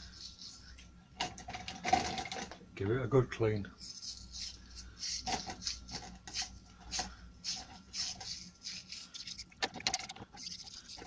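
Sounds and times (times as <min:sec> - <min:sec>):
brush scrubbing metal: 0:00.0 - 0:00.9, 0:03.7 - 0:11.0.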